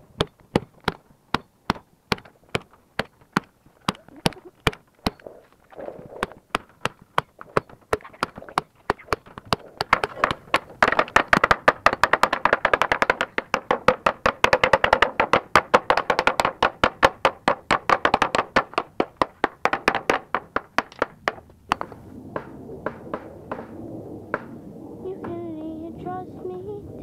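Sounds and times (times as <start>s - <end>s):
hammer tapping on wood: 6.2s - 23.7s.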